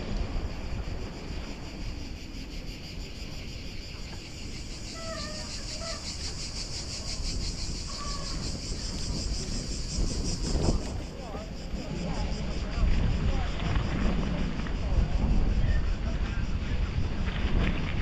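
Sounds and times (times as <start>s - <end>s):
insects buzzing: 0.0s - 18.0s
wind rumble on microphone: 0.0s - 18.0s.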